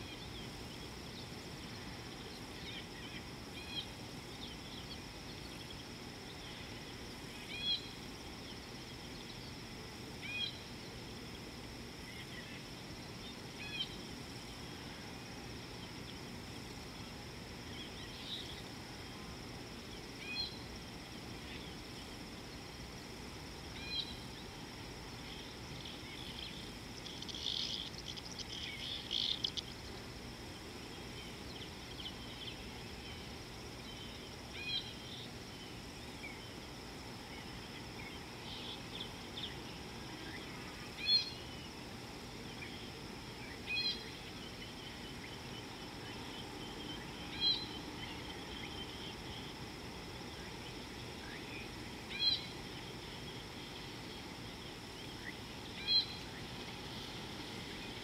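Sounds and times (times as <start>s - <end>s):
high-pitched insect drone: 0.0s - 58.0s
rapid bird chattering: 27.0s - 29.7s.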